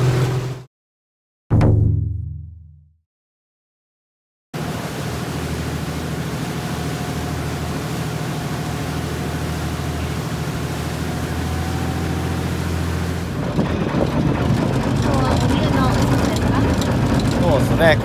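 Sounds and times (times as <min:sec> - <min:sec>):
boat engine droning: 0:00.0 - 0:00.7, 0:04.6 - 0:18.0
water rushing from wake: 0:00.0 - 0:00.7, 0:04.6 - 0:18.0.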